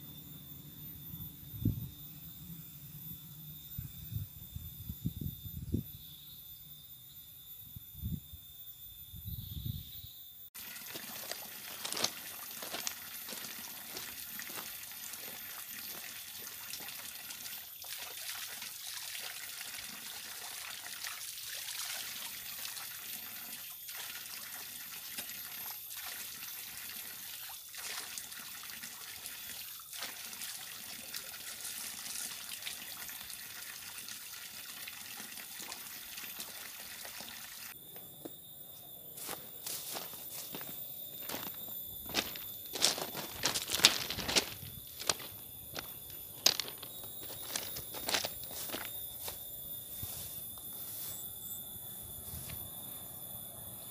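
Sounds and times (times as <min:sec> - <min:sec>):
water trickling onto rocks: 0:10.6 - 0:19.8, 0:35.5 - 0:37.3, 0:41.2 - 0:48.9.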